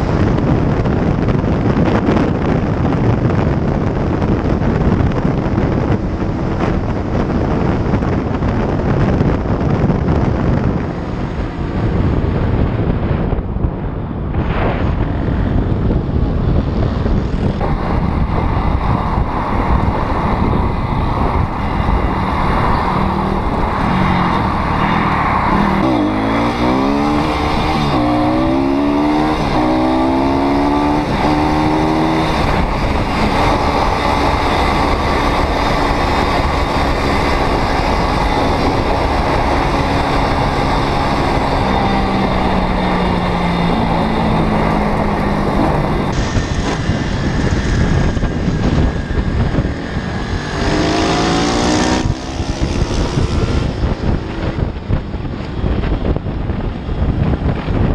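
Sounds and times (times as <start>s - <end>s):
wind rush on microphone: 0.0s - 57.9s
motorcycle engine revving: 14.5s - 57.9s.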